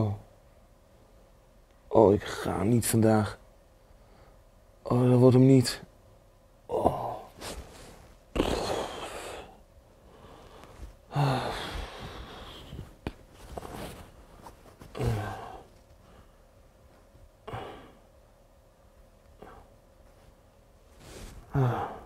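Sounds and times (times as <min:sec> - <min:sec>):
man groaning and sighing: 0:06.7 - 0:07.4, 0:08.3 - 0:09.6, 0:11.1 - 0:12.4, 0:14.9 - 0:15.7, 0:17.4 - 0:18.0, 0:21.4 - 0:22.0.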